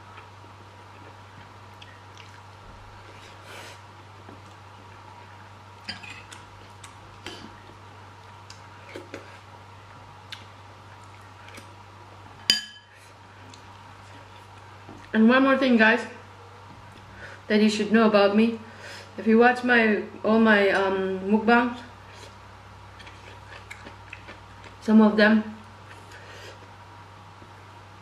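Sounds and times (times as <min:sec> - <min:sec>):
steady low hum: 0:00.0 - 0:28.0
wet mouth eating noises: 0:01.0 - 0:02.5, 0:23.0 - 0:24.8
metal spoon clinking on glass bowl: 0:12.5 - 0:12.9.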